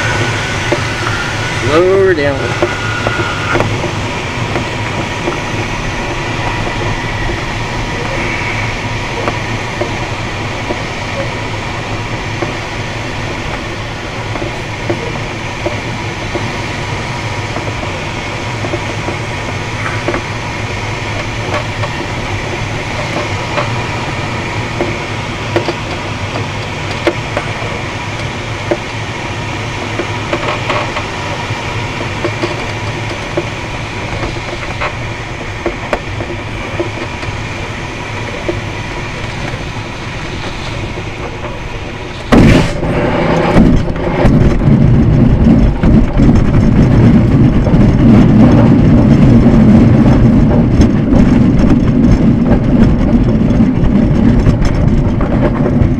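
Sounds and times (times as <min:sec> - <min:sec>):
wind and airframe noise: 0:00.0 - 0:55.9
knocks and rattles: 0:38.2 - 0:55.9.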